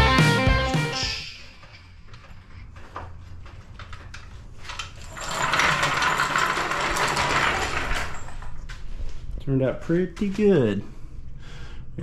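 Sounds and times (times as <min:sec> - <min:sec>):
metal jack scraping on concrete: 0:05.0 - 0:08.5.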